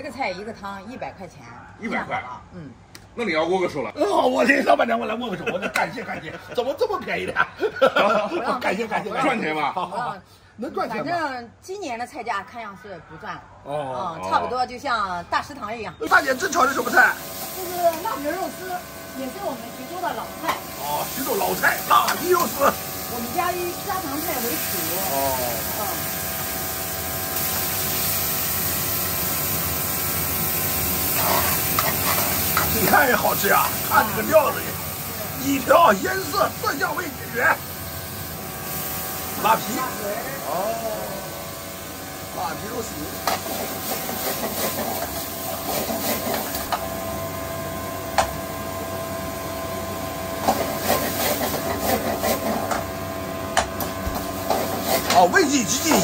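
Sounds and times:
gas burner rushing hiss: 15.5 - 56.0
food sizzling in a wok: 16.0 - 56.0
spatula scraping and clanking on wok: 31.1 - 33.0, 43.2 - 46.7, 50.4 - 52.8, 54.1 - 55.3.

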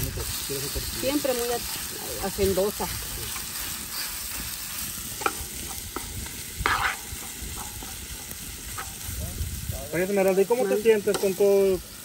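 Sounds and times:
sausage sizzling in a pan: 0.0 - 12.0
utensil scraping a pan: 0.3 - 9.1.

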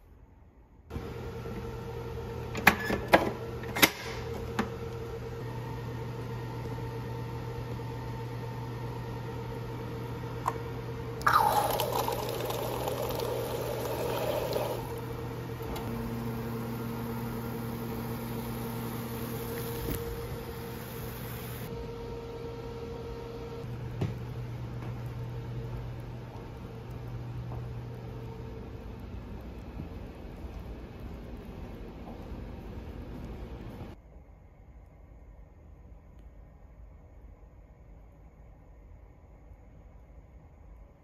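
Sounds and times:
steady low hum: 3.3 - 41.0
soda pouring into cup: 11.2 - 16.6.

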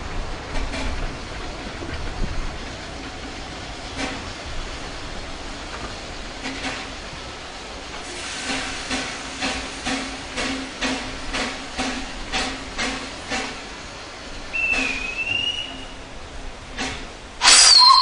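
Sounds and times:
steam locomotive chuffing: 0.3 - 18.0
high whistle-like tone: 14.6 - 15.9, 17.4 - 18.0.

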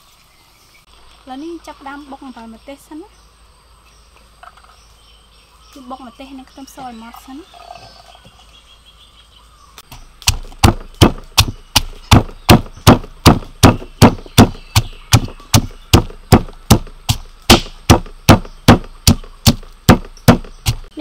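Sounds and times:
mortar and pestle pounding: 10.2 - 21.0.

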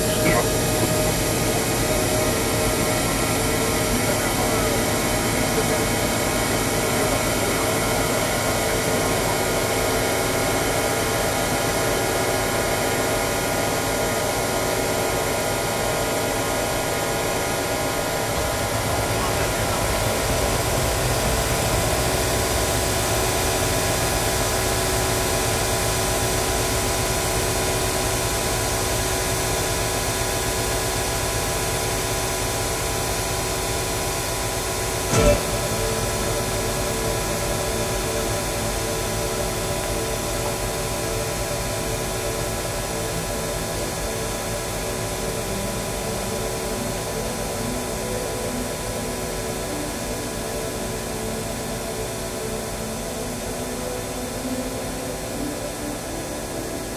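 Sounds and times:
noisy hiss: 0.0 - 9.9
dense drone of held tones: 0.0 - 29.3, 34.8 - 56.9
pulsing notes: 35.1 - 41.9.

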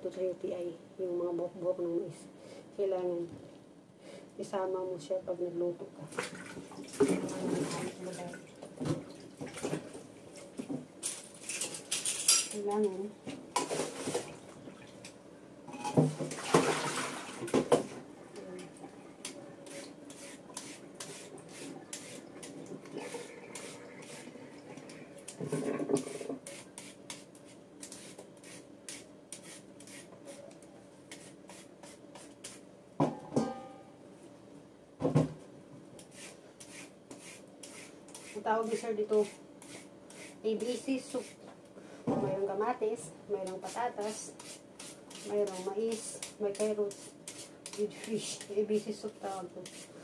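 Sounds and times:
peeler scraping carrot: 43.6 - 48.6, 49.2 - 50.0.

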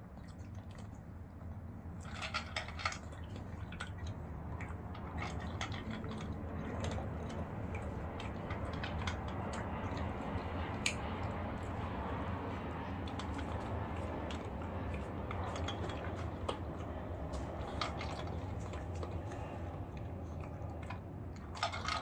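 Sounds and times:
dog crunching kibble: 0.0 - 22.0
kibble clicking against metal bowl: 2.0 - 11.8, 13.0 - 22.0.

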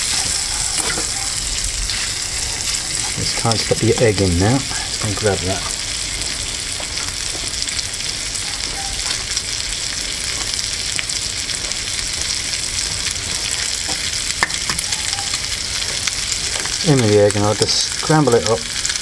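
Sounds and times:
bacon sizzling: 0.0 - 19.0
fat popping: 10.3 - 16.8.

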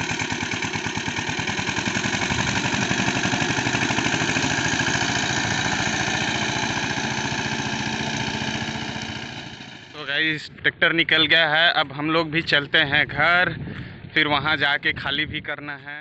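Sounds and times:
tractor engine chugging: 0.0 - 10.0.

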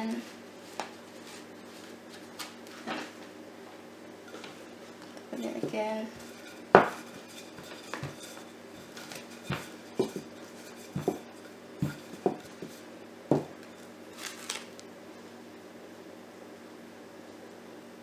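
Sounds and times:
rolling pin scraping: 0.0 - 3.2, 4.2 - 14.6
rolling pin knocking on dough: 5.6 - 13.6.

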